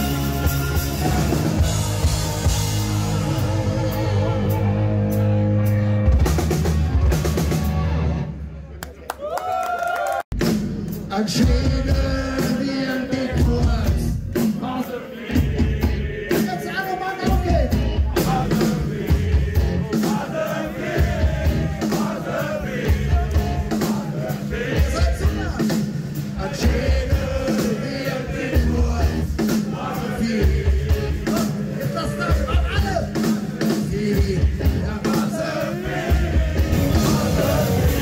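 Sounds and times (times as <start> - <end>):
rock music with singing: 0.0 - 8.4, 10.4 - 38.0
heavy bass beat: 17.2 - 27.5, 30.2 - 38.0.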